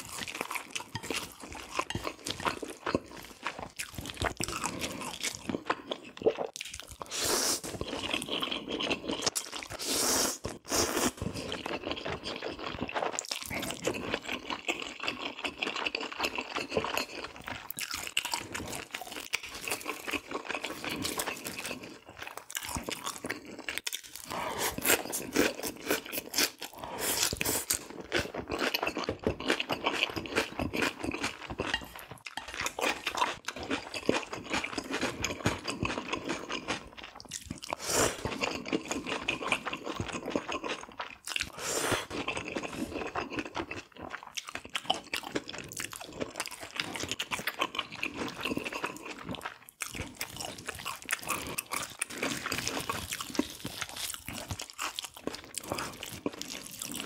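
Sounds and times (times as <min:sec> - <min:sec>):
person chewing food: 0:00.0 - 0:57.0.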